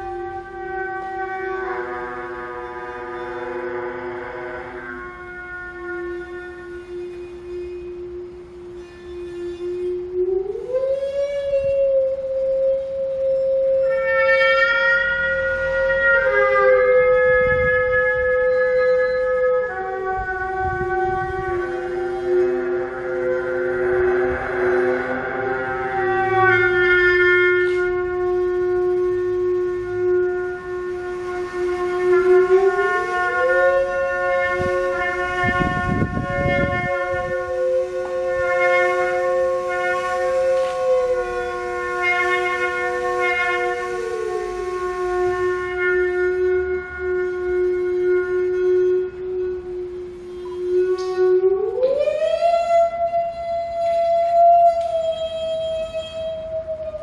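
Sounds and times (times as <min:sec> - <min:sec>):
bowed musical saw tone: 0:00.0 - 0:57.0
low rough noise: 0:00.0 - 0:57.0
trumpet playing long notes: 0:00.0 - 0:57.0.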